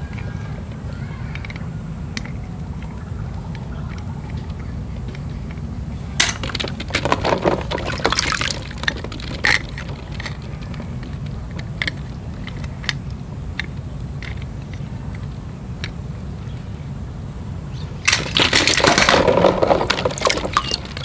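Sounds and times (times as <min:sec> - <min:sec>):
steady low hum: 0:00.0 - 0:21.0
light plastic clicks: 0:01.3 - 0:05.6, 0:08.8 - 0:16.0
water splashing in a tub: 0:07.0 - 0:09.9, 0:18.2 - 0:21.0
water dripping: 0:19.9 - 0:21.0.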